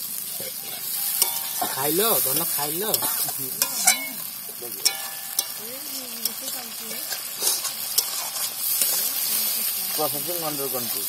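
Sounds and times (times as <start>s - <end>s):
food sizzling in a pan: 0.0s - 11.0s
metal spoon clicking on pan: 4.8s - 5.6s.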